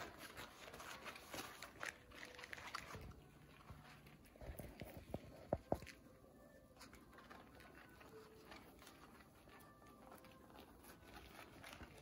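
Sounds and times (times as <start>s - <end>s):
puppy paws scratching and pattering: 0.0s - 12.0s.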